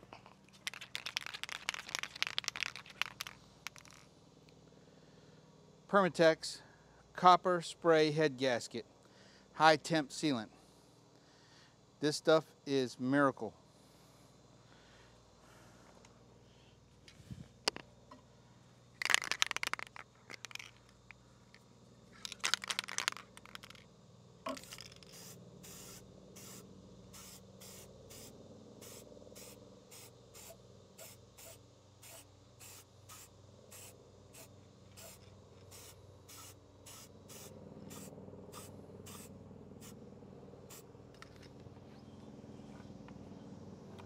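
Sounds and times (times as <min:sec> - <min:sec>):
aerosol can hissing: 0:24.5 - 0:26.6, 0:27.2 - 0:39.3.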